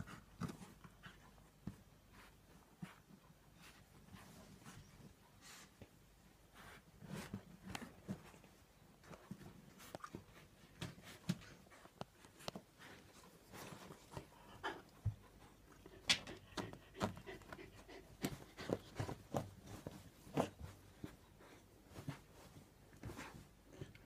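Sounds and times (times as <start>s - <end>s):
paws scratching blankets: 0.0s - 24.0s
dog panting: 9.3s - 24.0s.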